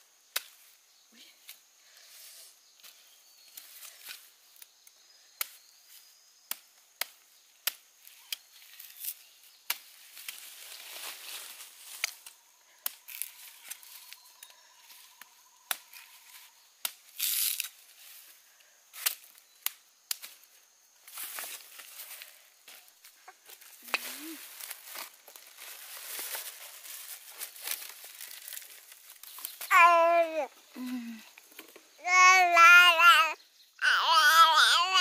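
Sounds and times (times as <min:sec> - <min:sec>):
rustling: 0:21.1 - 0:31.7.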